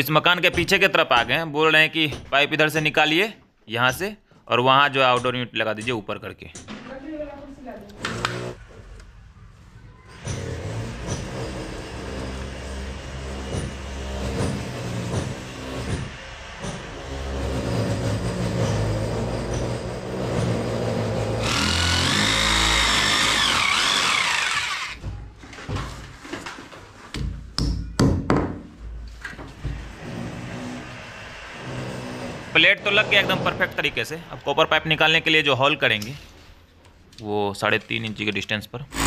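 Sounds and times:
electric drill whining: 0:21.4 - 0:25.0.

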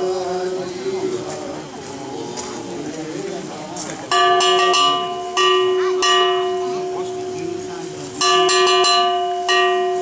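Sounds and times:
small metal bell ringing: 0:04.1 - 0:10.0.

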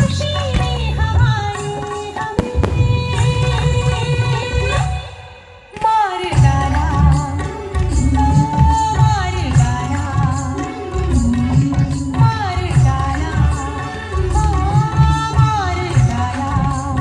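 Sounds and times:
steady drum beat: 0:00.0 - 0:05.0
sung melody: 0:00.2 - 0:05.5.

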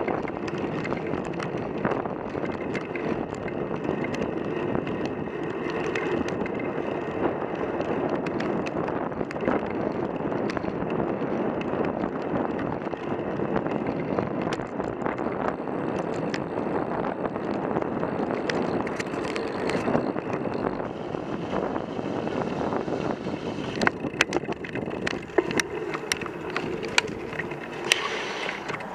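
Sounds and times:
tyres rushing on tarmac: 0:00.0 - 0:28.9
wind on microphone: 0:00.0 - 0:28.9
camera mount knocking and rattling: 0:23.8 - 0:28.9.

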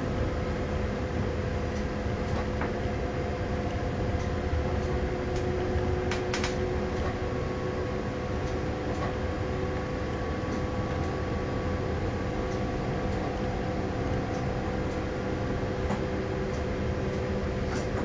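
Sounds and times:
train running rumble: 0:00.0 - 0:18.0
whining drive tones: 0:00.0 - 0:18.0.

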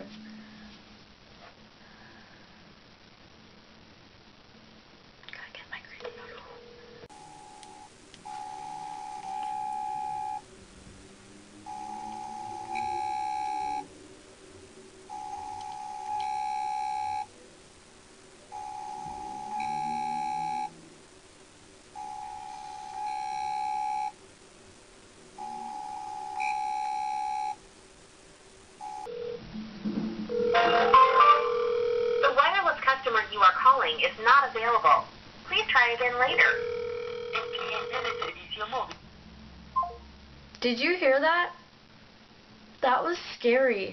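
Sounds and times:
phone ringback tone: 0:06.6 - 0:10.4, 0:11.6 - 0:13.9, 0:15.1 - 0:17.3, 0:18.5 - 0:20.8, 0:22.0 - 0:24.2, 0:25.4 - 0:27.6, 0:28.8 - 0:29.4, 0:30.3 - 0:32.3, 0:36.3 - 0:38.4.

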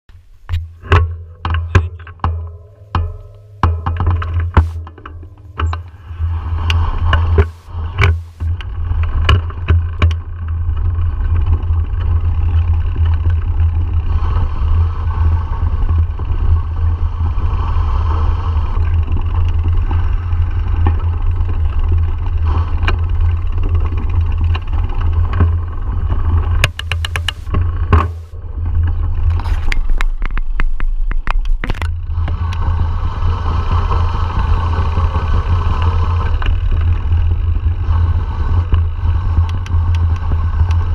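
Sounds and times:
bike clattering over rough ground: 0:00.4 - 0:17.0, 0:18.7 - 0:32.8, 0:33.7 - 0:40.9.

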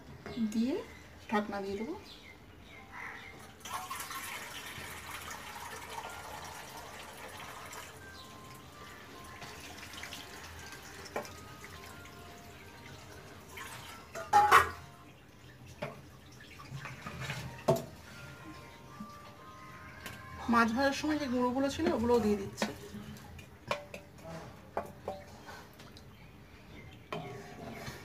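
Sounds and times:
metal utensils knocking on a pan: 0:14.1 - 0:14.9, 0:21.8 - 0:22.9, 0:23.6 - 0:24.2.

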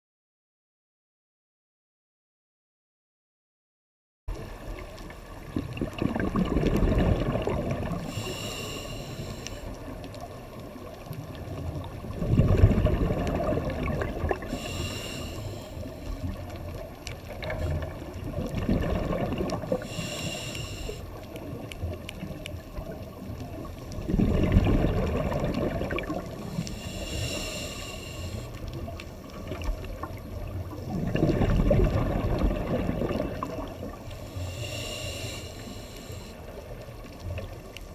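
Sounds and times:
exhaled bubbles gurgling: 0:04.3 - 0:37.9
regulator hissing on inhale: 0:07.9 - 0:09.9, 0:14.4 - 0:16.5, 0:19.7 - 0:21.3, 0:26.3 - 0:29.2, 0:33.9 - 0:36.8.

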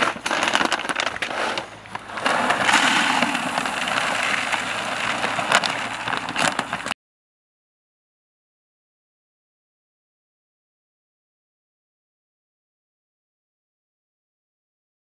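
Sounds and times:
kibble pouring into plastic bucket: 0:00.0 - 0:07.0
plastic sack rustling: 0:00.0 - 0:07.0.

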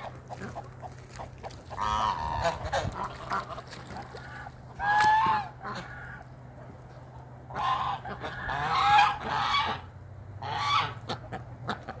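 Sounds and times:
geese honking: 0:00.0 - 0:06.4, 0:07.4 - 0:12.0.

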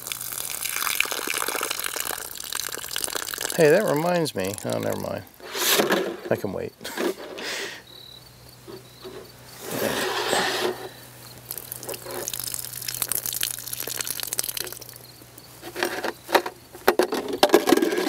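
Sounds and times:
crackling splashes: 0:00.0 - 0:05.6, 0:11.2 - 0:15.5
water pouring into jug: 0:00.0 - 0:05.6, 0:11.5 - 0:15.0.

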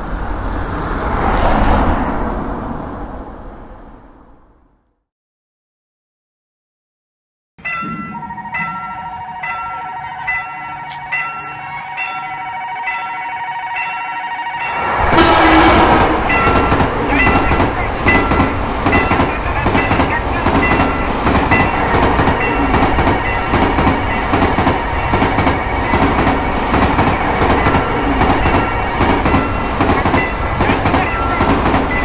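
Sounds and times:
crossing warning bell dinging: 0:07.6 - 0:32.0.

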